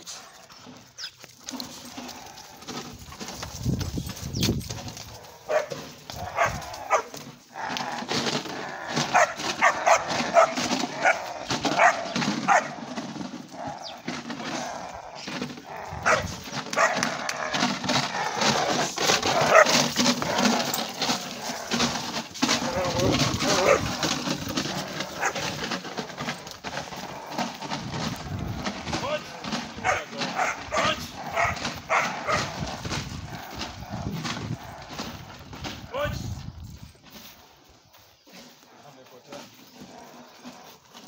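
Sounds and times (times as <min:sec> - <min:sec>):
young dogs barking: 0:05.2 - 0:13.0, 0:13.6 - 0:25.7, 0:29.2 - 0:35.4.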